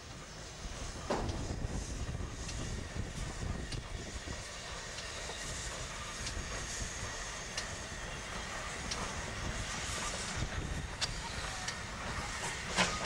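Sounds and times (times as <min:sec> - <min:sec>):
train rumbling past: 0:00.0 - 0:13.0
sharp rail clicks: 0:03.6 - 0:13.0.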